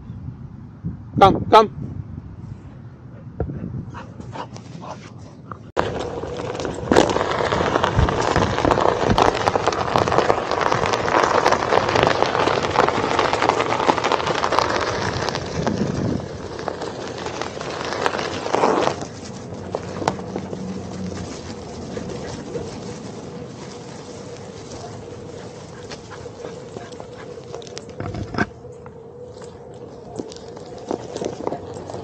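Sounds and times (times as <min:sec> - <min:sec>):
wheel rolling over gravel: 0:05.8 - 0:28.6, 0:29.2 - 0:32.0.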